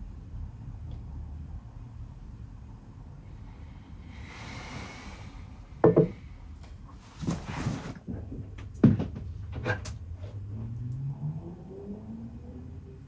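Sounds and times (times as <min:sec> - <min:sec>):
sharp knocks: 0:05.8 - 0:06.2.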